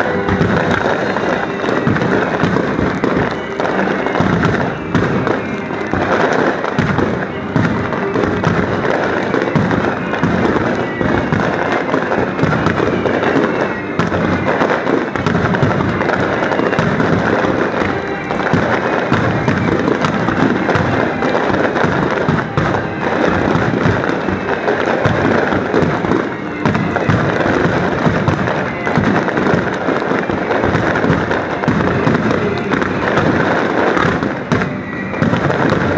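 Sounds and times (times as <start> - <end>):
fireworks bangs and crackles: 0.0 - 35.9.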